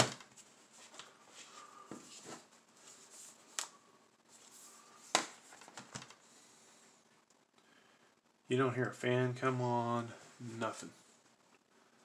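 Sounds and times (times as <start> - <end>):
plastic laptop cover rustling: 4.3 - 6.3.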